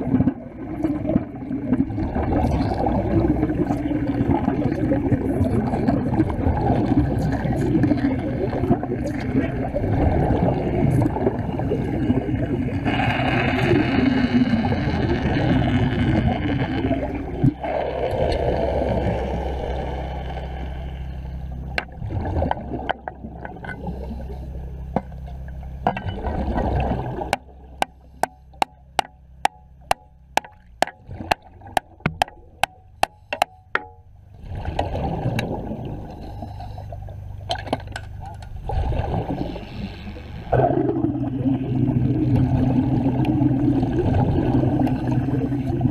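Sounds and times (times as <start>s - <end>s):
underwater bubbling and gurgling: 0.0s - 45.9s
steady clicking beat: 27.3s - 34.0s.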